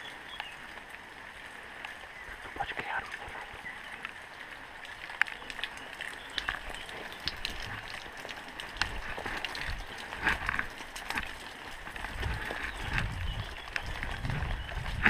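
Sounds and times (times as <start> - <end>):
leaves and branches rustling: 0.0 - 15.0
footsteps in undergrowth: 3.7 - 15.0
twigs snapping: 5.0 - 15.0.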